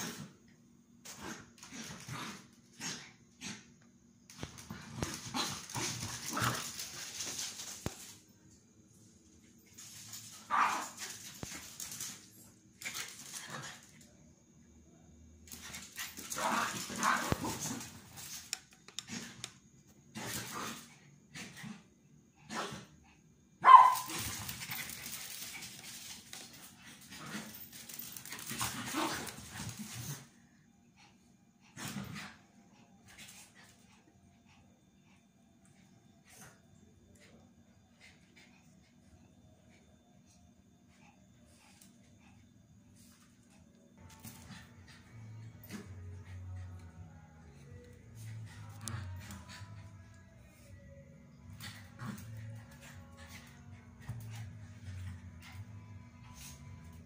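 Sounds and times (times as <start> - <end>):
dogs scuffling on tile floor: 4.3 - 14.1, 15.4 - 19.5, 23.9 - 30.4, 43.0 - 47.0, 51.4 - 57.0
small dog barking: 10.5 - 11.0, 23.6 - 24.2.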